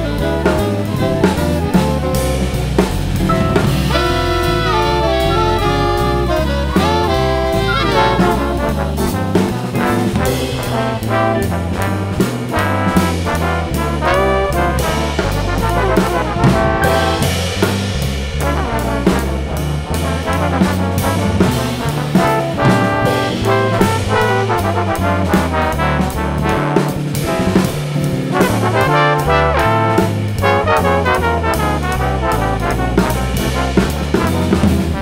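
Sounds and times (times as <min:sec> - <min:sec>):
bass line: 0:00.0 - 0:35.0
drums keeping time: 0:00.0 - 0:35.0
trombones playing in harmony: 0:00.0 - 0:35.0.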